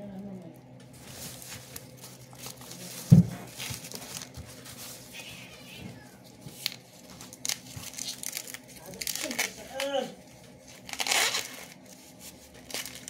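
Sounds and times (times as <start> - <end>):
corn husks rustling: 0.0 - 13.0.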